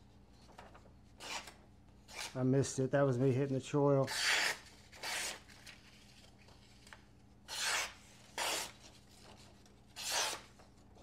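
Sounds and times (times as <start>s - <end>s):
knife slicing paper: 7.5s - 9.0s, 9.9s - 10.6s.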